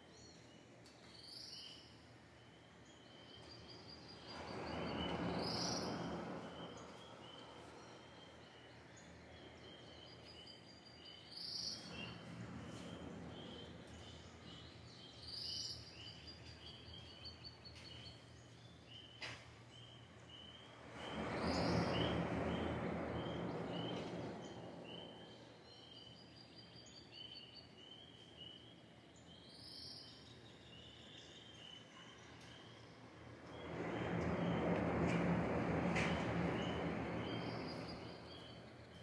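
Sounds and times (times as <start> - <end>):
faint sea wash: 3.8 - 10.2, 19.5 - 25.9, 32.3 - 39.0.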